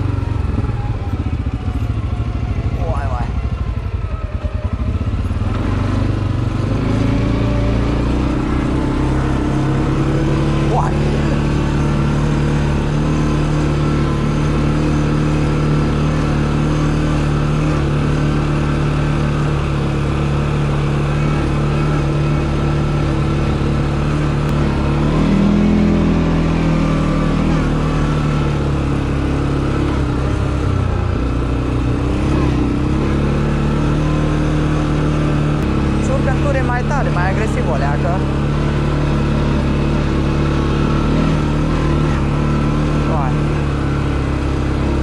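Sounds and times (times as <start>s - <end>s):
atv engine running: 0.0s - 45.0s.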